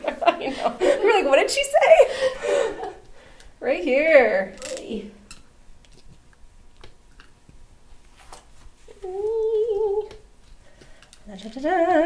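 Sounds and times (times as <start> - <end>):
woman humming: 8.9 - 10.3.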